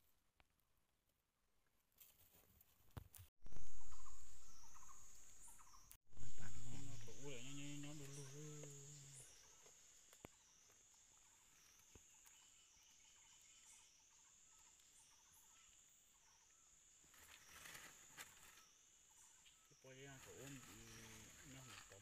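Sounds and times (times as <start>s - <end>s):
high-pitched insect drone: 3.5s - 9.6s
rustle of gravel and leaves: 16.5s - 22.0s.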